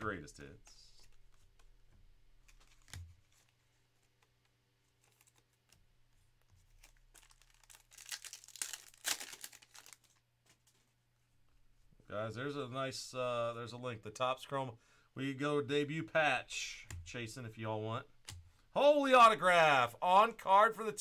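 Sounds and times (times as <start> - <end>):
foil wrapper tearing and crinkling: 6.7 - 10.2.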